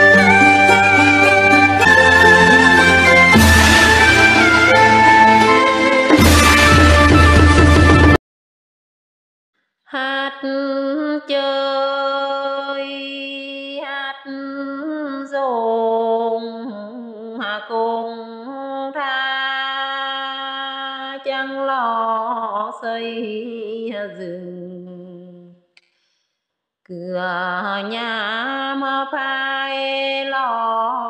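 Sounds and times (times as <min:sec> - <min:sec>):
woman singing unaccompanied: 0:09.9 - 0:25.6, 0:26.9 - 0:31.0
singer breathing: 0:25.8 - 0:26.5.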